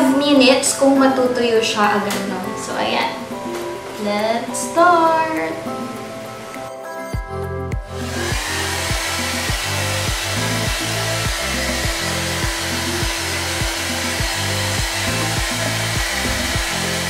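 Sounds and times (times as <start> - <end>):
background music with steady beat: 0.0 - 17.0
hair dryer blowing: 7.8 - 17.0.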